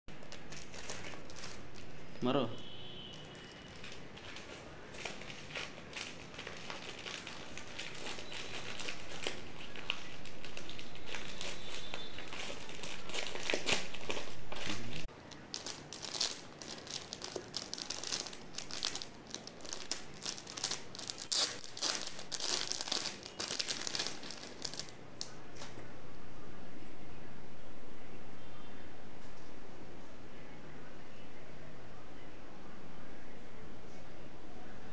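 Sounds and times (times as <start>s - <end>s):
packaging crinkling: 0.1s - 2.2s, 3.1s - 25.7s.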